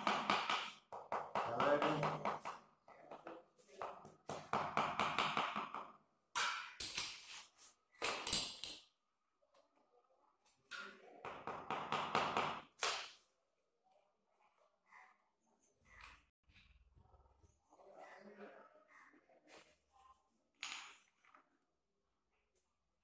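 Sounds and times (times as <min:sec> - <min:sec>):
hammer handle tapping tile: 0:00.0 - 0:07.1.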